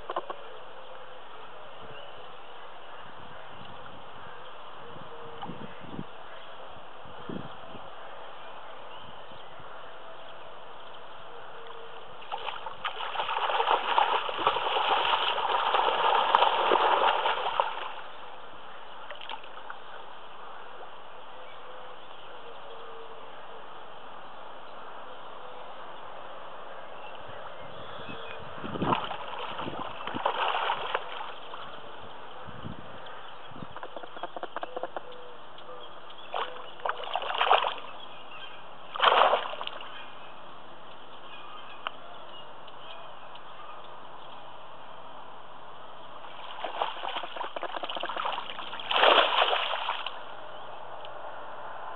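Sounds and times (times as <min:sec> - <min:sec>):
fish splashing in shallows: 0:12.2 - 0:18.1, 0:28.8 - 0:31.8, 0:36.3 - 0:38.0, 0:38.9 - 0:39.9, 0:46.2 - 0:50.2.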